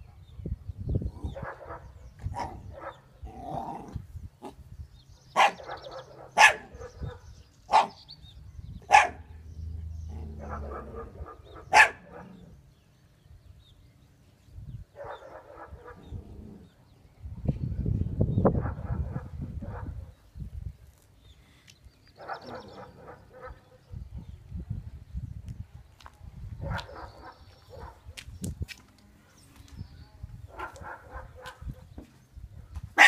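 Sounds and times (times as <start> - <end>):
puppy barking: 1.2 - 3.1, 5.3 - 8.0, 8.9 - 9.3, 10.3 - 12.4, 15.0 - 16.2, 22.2 - 23.8, 26.6 - 28.0, 30.5 - 31.9.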